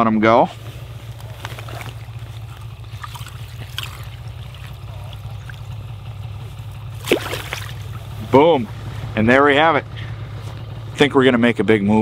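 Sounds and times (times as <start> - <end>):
steady low hum: 0.0 - 12.0
water dribbling and sloshing: 1.0 - 8.2
soft splashes: 1.4 - 8.2.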